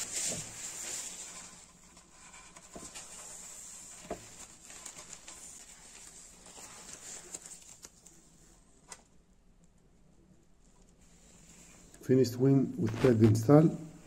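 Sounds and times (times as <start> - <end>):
cloth rustling: 0.0 - 8.6.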